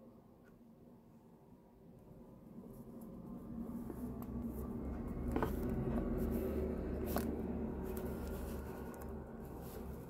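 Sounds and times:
low rumble: 2.4s - 10.0s.

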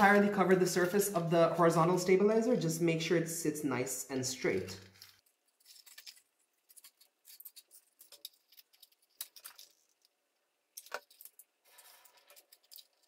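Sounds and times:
clicks and rustles of handling parts: 4.8s - 13.0s.

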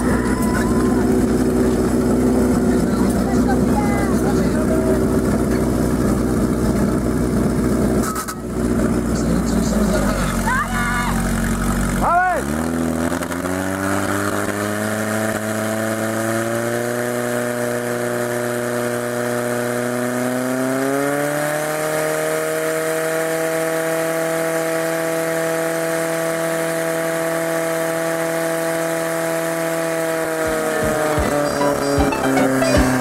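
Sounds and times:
fire pump engine droning: 0.0s - 9.4s, 28.6s - 33.0s.

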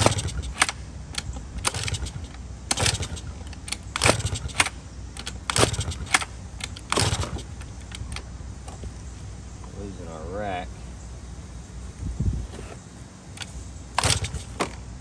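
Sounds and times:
scooter engine turning over: 0.0s - 8.2s, 13.4s - 14.9s
kick lever clanking: 0.0s - 8.3s, 13.4s - 14.8s.

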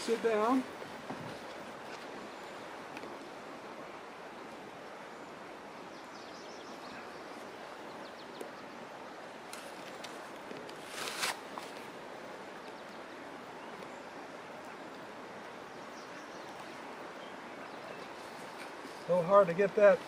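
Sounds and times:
outdoor background hiss: 0.0s - 20.0s
boot laces rustling and clicking: 9.6s - 11.8s.

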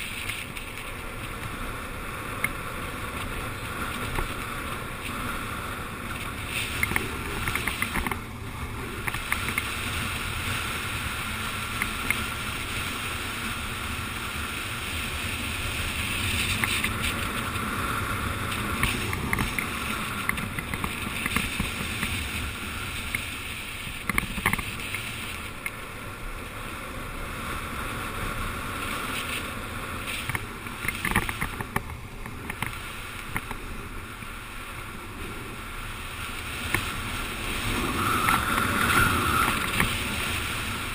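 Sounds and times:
wheels rolling on asphalt: 0.0s - 40.9s
wind rushing over camera: 0.0s - 40.9s
sharp clicks: 6.7s - 8.2s, 30.2s - 33.6s.

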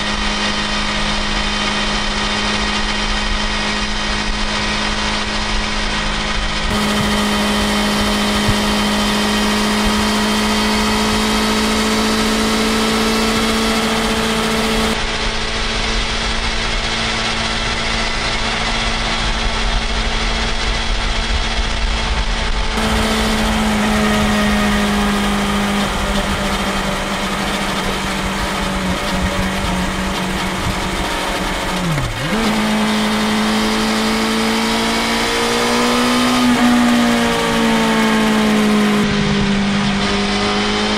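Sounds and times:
motorcycle engine cruising: 0.0s - 40.9s
wind rush: 36.4s - 40.9s.

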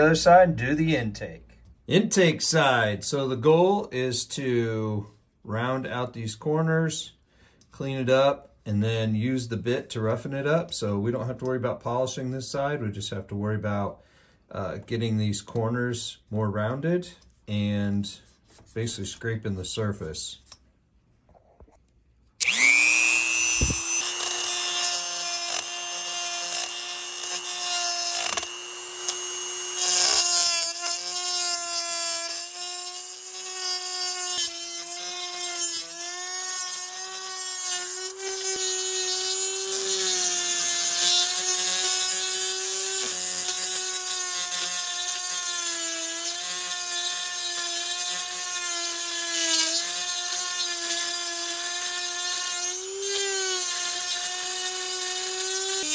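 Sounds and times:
rotary tool whining: 22.4s - 55.9s.

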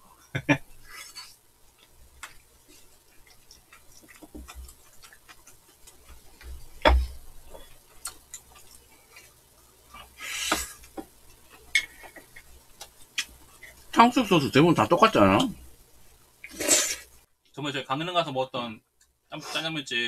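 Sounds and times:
slurp of noodles: 16.5s - 17.1s.

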